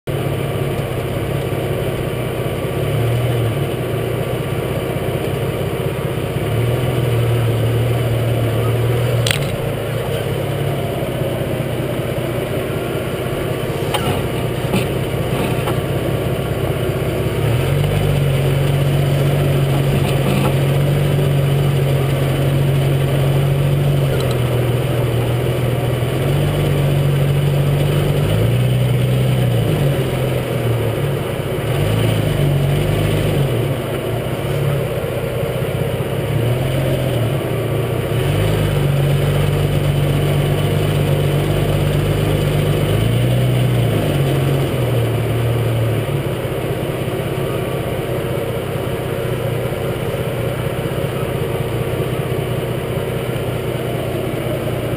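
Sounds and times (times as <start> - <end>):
engine running low: 0.0 - 54.9
tyres on gravel: 7.8 - 54.9
sharp click: 9.2 - 9.6.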